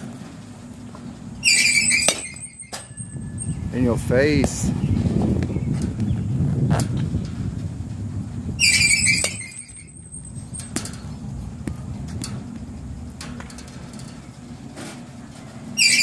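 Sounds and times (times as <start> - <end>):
pitching machine squeal: 1.4 - 4.0, 8.6 - 10.6, 15.8 - 16.0
bat cracking ball: 1.7 - 2.9, 8.9 - 9.8.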